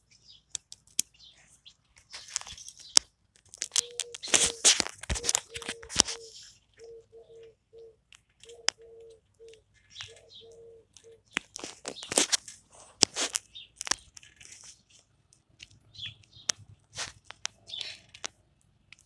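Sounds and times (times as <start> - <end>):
plastic toy parts clicking: 2.0 - 6.2.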